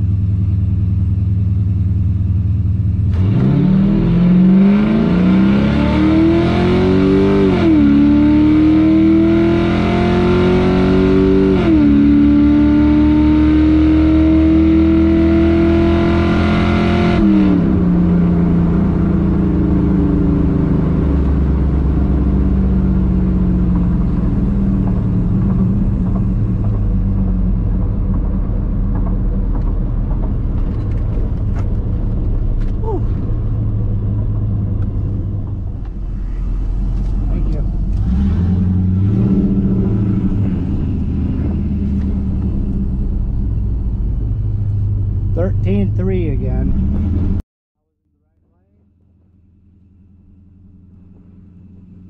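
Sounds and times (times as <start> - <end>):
engine revving at full throttle: 3.1 - 25.7, 36.7 - 42.8, 45.3 - 47.4.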